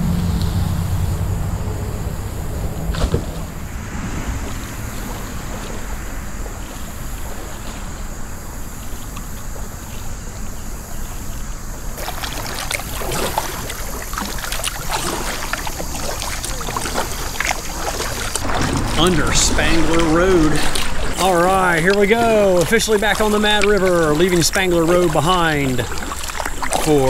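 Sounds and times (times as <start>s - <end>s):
steady low rumble: 0.0s - 26.8s
paddle splashes: 0.0s - 27.0s
water dripping: 12.0s - 27.0s.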